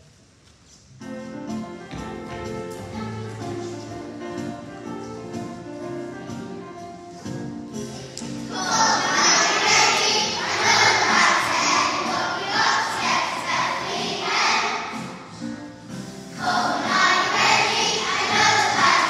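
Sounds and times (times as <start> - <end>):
instrumental music: 0.8 - 19.0
children singing: 7.9 - 15.4, 16.3 - 19.0.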